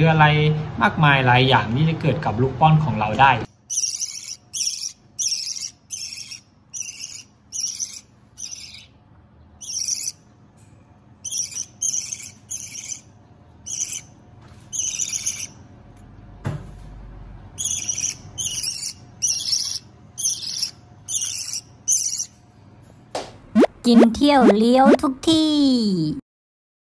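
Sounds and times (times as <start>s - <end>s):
budgerigar chick calling: 3.7s - 9.0s, 9.6s - 10.2s, 11.2s - 15.6s, 17.6s - 22.3s.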